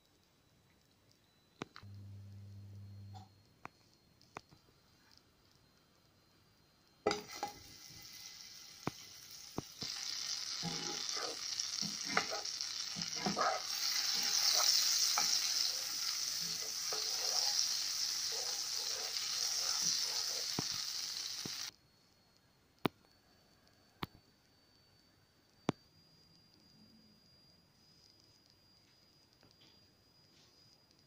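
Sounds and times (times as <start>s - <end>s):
butter sizzling in frying pan: 7.0s - 21.7s
spatula scraping pan: 9.8s - 20.5s.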